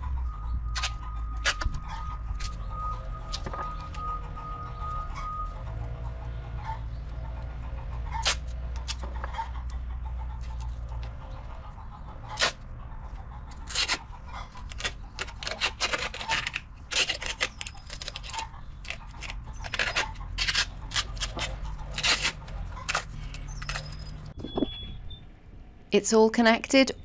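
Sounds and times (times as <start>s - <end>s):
plastic pipe scraping and clicking: 13.6s - 24.4s.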